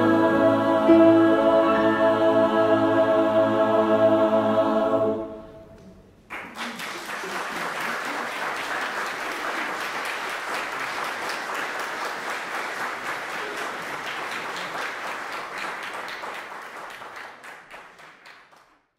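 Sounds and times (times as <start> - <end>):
audience applause: 6.3 - 18.8.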